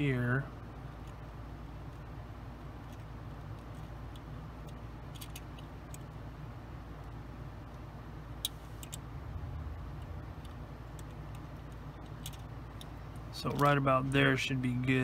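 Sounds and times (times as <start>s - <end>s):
steady low hum: 0.0s - 15.0s
plastic parts ticking: 2.8s - 6.1s.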